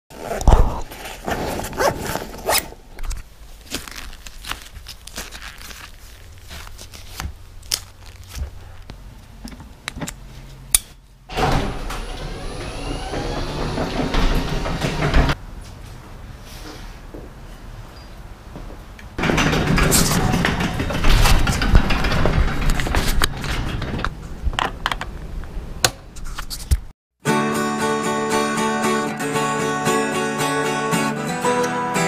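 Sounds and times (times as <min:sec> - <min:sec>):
velcro straps ripping: 0:00.2 - 0:08.9
garage door opener whirring: 0:11.3 - 0:15.4, 0:19.2 - 0:24.1.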